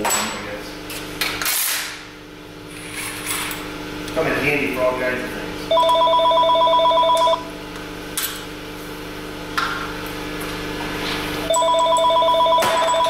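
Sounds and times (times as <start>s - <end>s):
telephone ringing two-tone warble: 5.7s - 7.5s, 11.5s - 13.0s.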